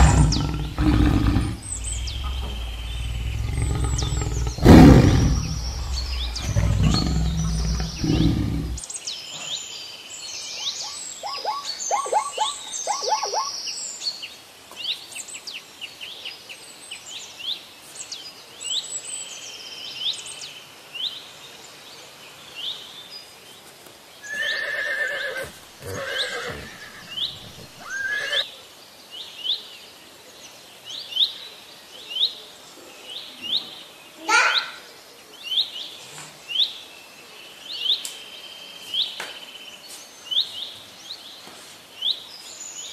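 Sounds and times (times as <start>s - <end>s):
big cat roaring: 0.0s - 8.8s, 25.8s - 27.9s
pitched animal calls: 0.0s - 8.8s.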